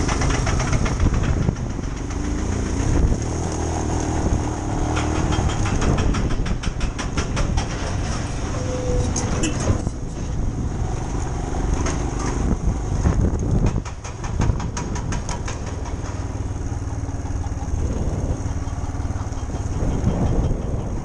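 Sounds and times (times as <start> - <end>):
motorcycle engine on dirt track: 0.0 - 21.0
rattling ticks: 4.6 - 8.3.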